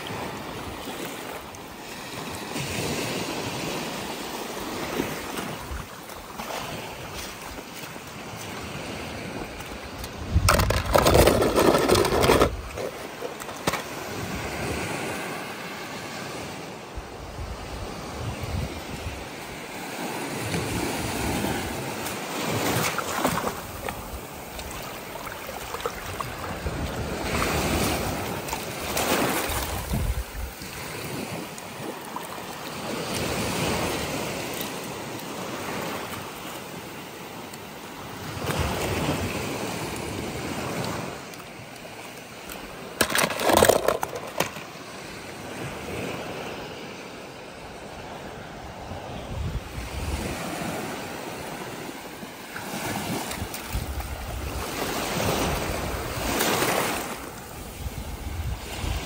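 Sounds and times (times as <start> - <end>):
water washing in and out: 0.0 - 15.7, 19.2 - 46.4
wind on microphone: 8.3 - 13.2, 16.2 - 31.9, 47.8 - 51.9, 52.7 - 59.0.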